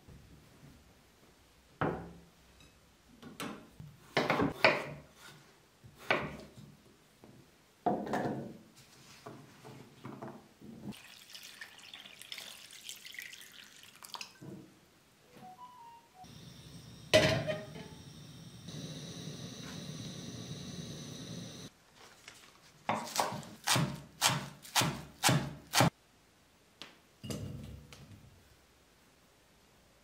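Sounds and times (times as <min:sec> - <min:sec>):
water pouring into a pot: 0:10.9 - 0:14.4
knife chopping on wooden board: 0:23.0 - 0:25.9.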